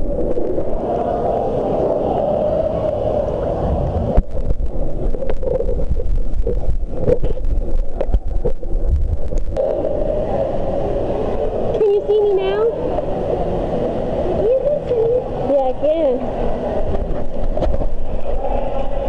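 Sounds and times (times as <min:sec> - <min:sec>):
gurgling bubbles underwater: 0:00.0 - 0:10.2
muffled pool noise: 0:00.0 - 0:19.0.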